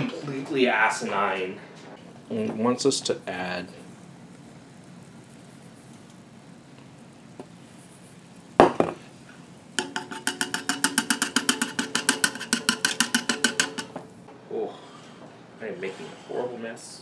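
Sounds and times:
whisk rattling in metal saucepan: 9.7s - 14.1s.

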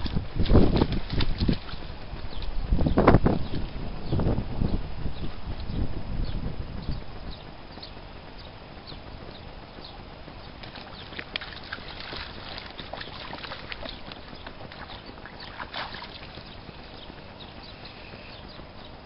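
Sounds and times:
steady low rumble: 0.0s - 19.0s
dog splashing in water: 10.6s - 16.5s.

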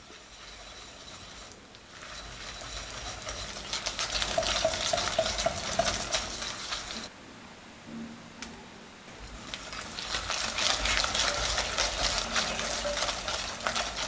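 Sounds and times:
whisk scraping a glass bowl: 0.0s - 7.1s, 9.3s - 14.0s.

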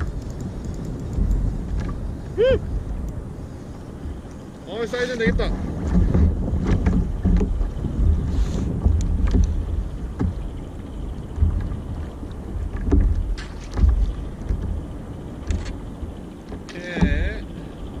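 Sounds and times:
water slapping kayak hull: 0.0s - 18.0s
wind buffeting microphone: 0.0s - 18.0s
sharp clicks and knocks: 8.8s - 9.6s.

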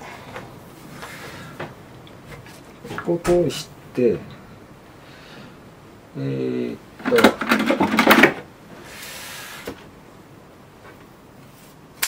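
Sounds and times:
small items clattering on shelf: 7.0s - 8.4s.

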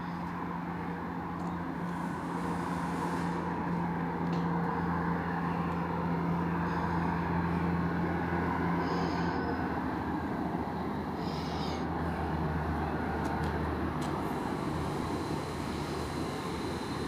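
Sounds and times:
electric train approaching: 1.1s - 17.0s.

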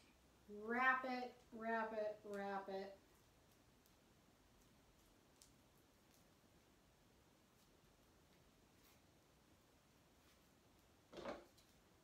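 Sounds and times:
faint rustle: 3.0s - 12.0s.

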